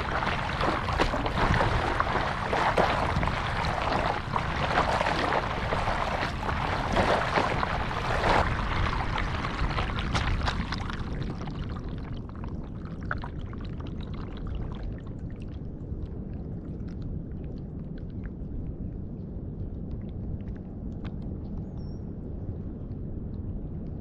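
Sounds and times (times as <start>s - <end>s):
water lapping: 0.0s - 11.8s
water rushing and splashing: 0.0s - 11.8s
water dripping and trickling: 0.0s - 15.6s.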